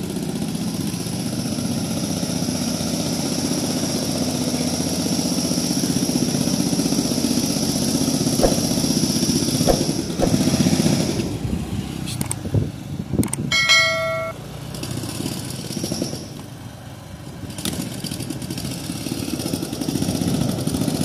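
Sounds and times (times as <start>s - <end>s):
short knocks: 8.4s - 9.1s, 9.7s - 10.6s
motorcycle engine running: 8.4s - 10.6s.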